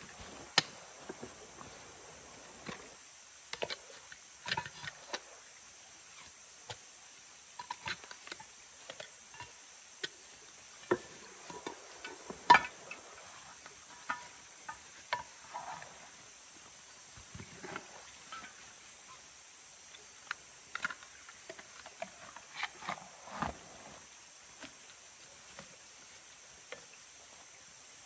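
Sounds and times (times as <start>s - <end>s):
high insect hum: 0.0s - 28.0s
camping gear knocks and clinks: 0.1s - 3.8s, 10.8s - 16.0s.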